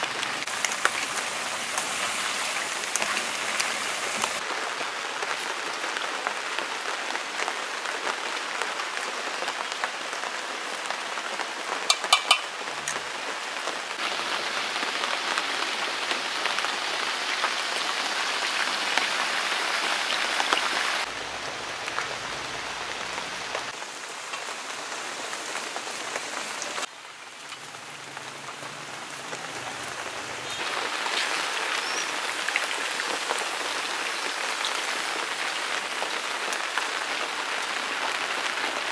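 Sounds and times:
chicken deep-frying in oil: 0.0 - 4.4, 11.9 - 12.8, 14.0 - 22.5, 24.2 - 38.9.

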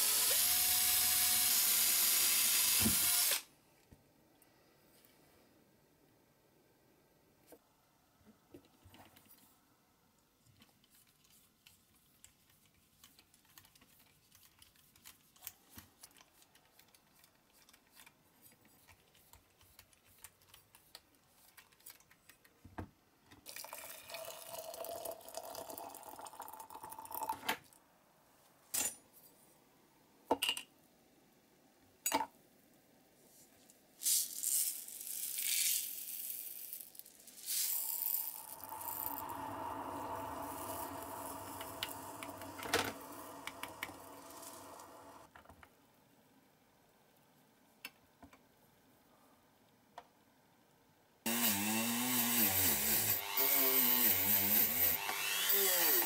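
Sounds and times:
water poured into glass jar: 23.5 - 27.4, 37.5 - 44.9
granules poured into water: 34.1 - 39.5.

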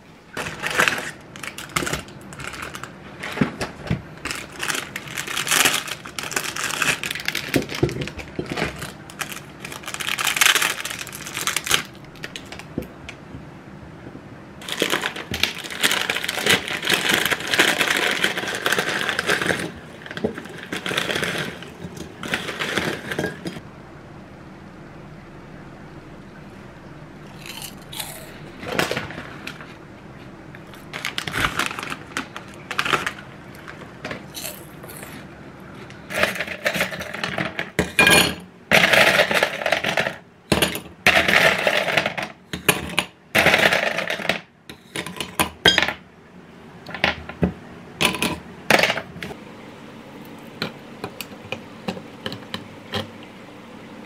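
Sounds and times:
ice cubes clattering into glass: 36.1 - 44.4.

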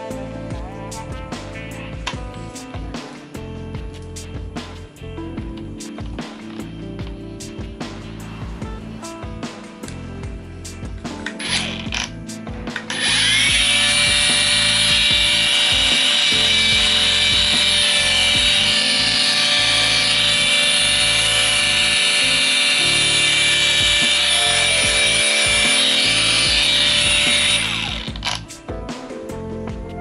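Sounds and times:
angle grinder high-pitched whine: 11.2 - 28.5.

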